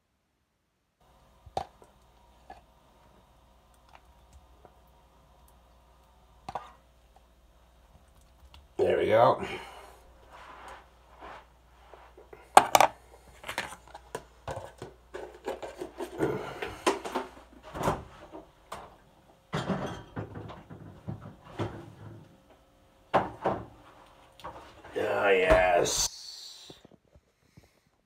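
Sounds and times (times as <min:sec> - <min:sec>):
dishes and utensils clinking: 0:19.5 - 0:20.8.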